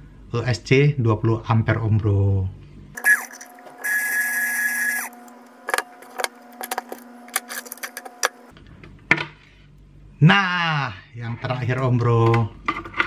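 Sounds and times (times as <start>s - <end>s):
steady low hum: 0.0s - 10.3s
high electric whine: 3.0s - 8.5s.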